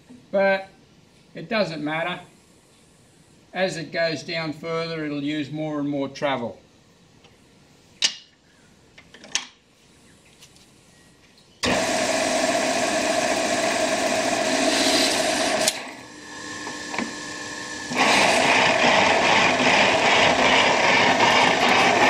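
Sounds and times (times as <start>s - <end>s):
metal shaper machine whirring: 11.6s - 22.0s.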